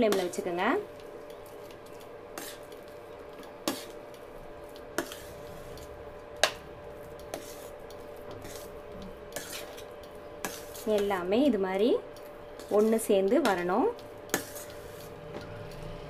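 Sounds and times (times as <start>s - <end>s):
cooktop hum: 0.0s - 16.0s
metal spoon scraping a pan: 2.3s - 2.8s, 3.6s - 4.0s, 4.9s - 6.6s, 7.2s - 11.3s, 12.6s - 15.5s.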